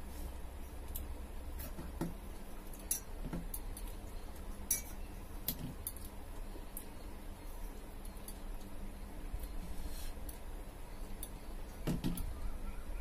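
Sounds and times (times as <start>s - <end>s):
low steady hum: 0.0s - 13.0s
clinks on a steel plate: 4.7s - 5.0s.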